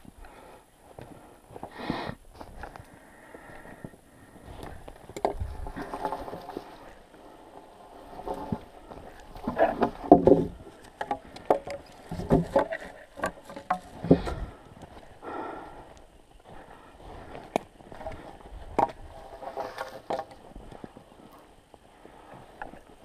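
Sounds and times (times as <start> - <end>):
logs knocking and scraping: 4.5 - 15.1, 16.5 - 23.0
brush rustling: 16.4 - 22.2.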